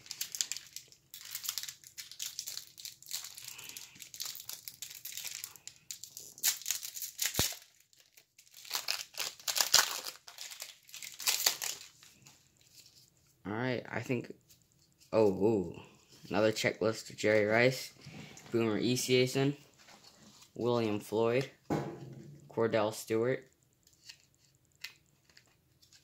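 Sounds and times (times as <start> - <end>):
foil pack crinkling: 0.0 - 13.0.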